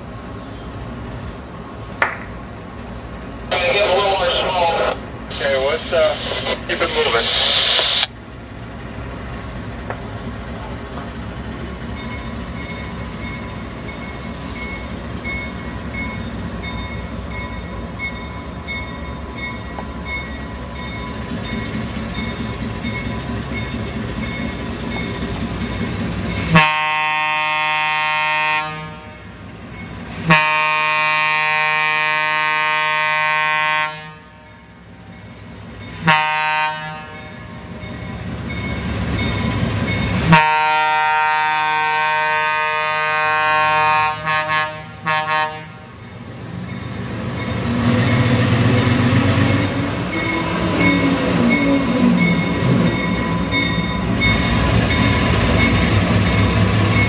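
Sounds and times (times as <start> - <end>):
locomotive engine and wheels: 0.0 - 57.0
locomotive air horn blasts: 26.5 - 29.3, 30.2 - 34.4, 36.0 - 37.2, 40.3 - 45.9.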